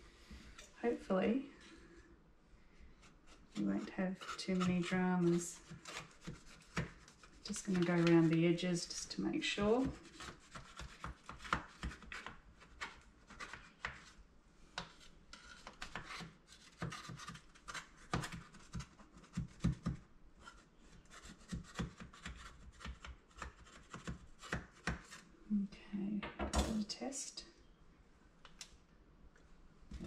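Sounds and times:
knife scraping metal pan: 3.6s - 8.3s.

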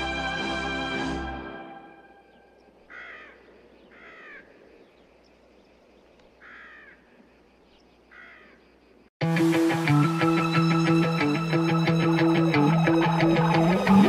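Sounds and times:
crow cawing: 2.8s - 4.7s, 6.4s - 7.2s, 8.1s - 8.7s.

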